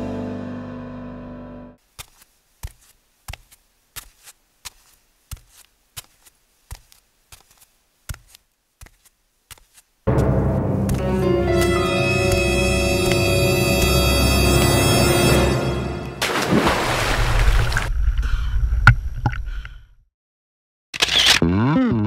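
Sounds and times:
music: 0.0 - 1.8, 10.1 - 16.3.

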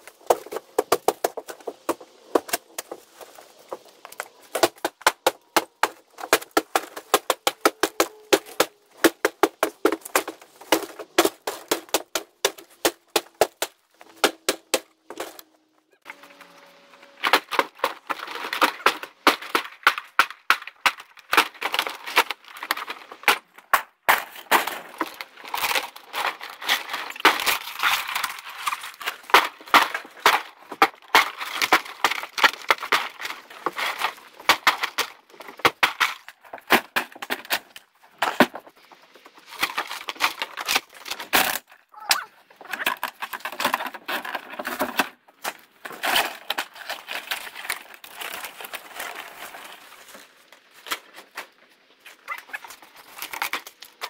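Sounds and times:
demolition clatter and cracks: 17.3 - 41.9, 42.6 - 54.0.

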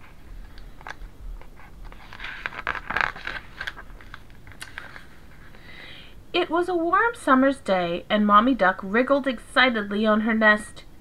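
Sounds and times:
book page turning: 0.4 - 5.5.

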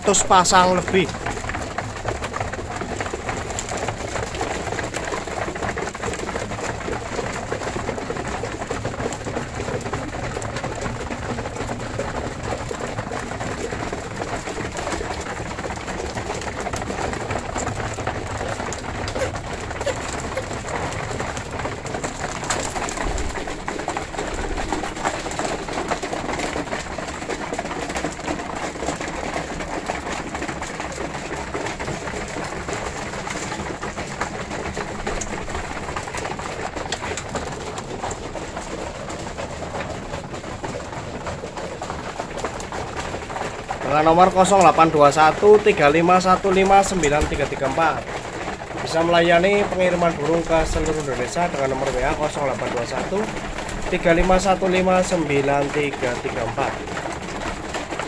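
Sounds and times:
birds pecking seed from plastic bowls: 0.0 - 58.0
pigeons cooing: 10.8 - 26.5.

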